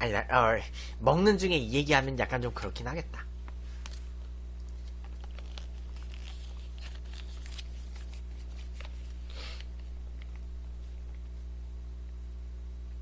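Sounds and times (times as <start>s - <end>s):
low electrical hum: 0.0s - 13.0s
plastic pouch crinkling: 4.6s - 10.4s.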